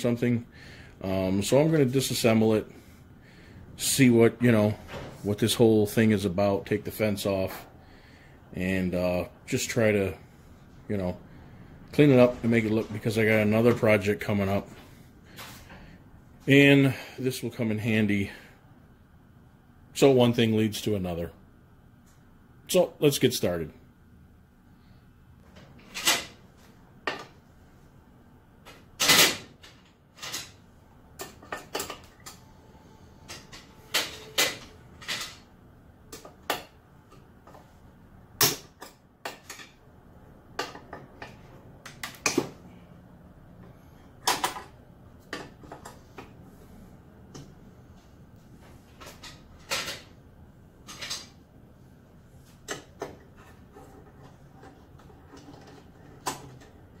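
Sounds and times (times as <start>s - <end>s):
metal parts clacking and knocking: 50.8s - 51.4s.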